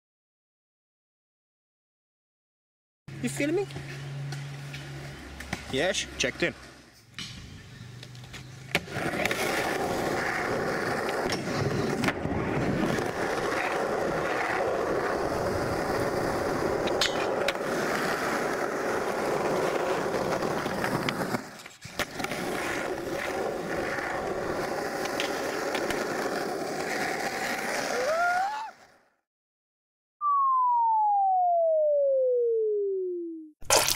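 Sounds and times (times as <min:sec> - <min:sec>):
skateboard wheels rolling on concrete: 0:03.1 - 0:29.0.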